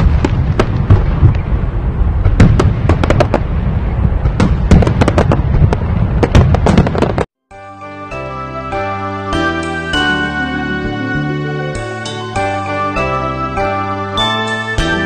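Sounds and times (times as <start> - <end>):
fireworks bangs and crackles: 0.0 - 7.3
low rumble: 0.0 - 7.3.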